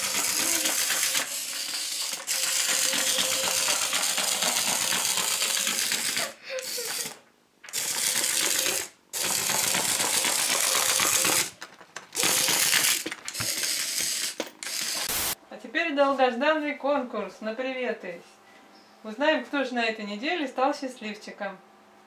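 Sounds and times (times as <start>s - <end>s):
toy mechanism clicking rattle: 0.0s - 15.4s.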